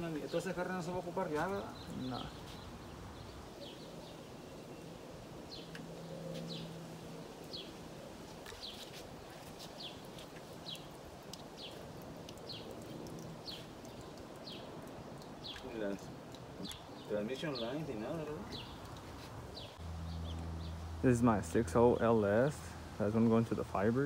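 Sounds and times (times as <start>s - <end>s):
bird chirping: 0.0s - 7.8s, 8.4s - 21.4s
faint outdoor background noise: 0.0s - 24.0s.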